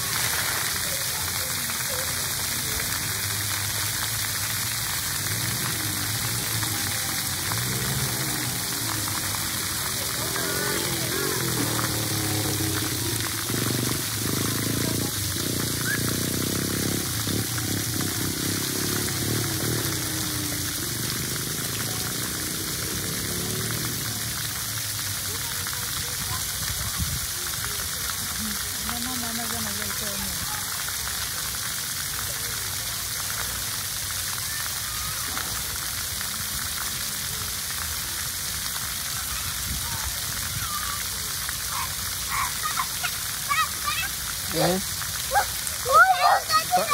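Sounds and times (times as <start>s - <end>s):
water jets spraying on concrete: 0.0s - 46.9s
wind rumbling on microphone: 26.2s - 27.4s.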